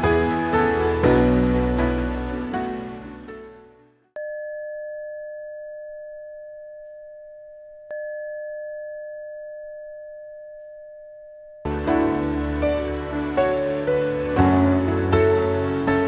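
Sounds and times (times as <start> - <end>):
background music: 0.0 - 4.1, 11.6 - 16.0.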